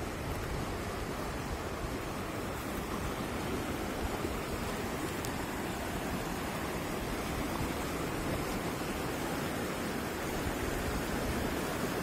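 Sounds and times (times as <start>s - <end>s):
creek rushing over rocks: 0.0s - 12.0s.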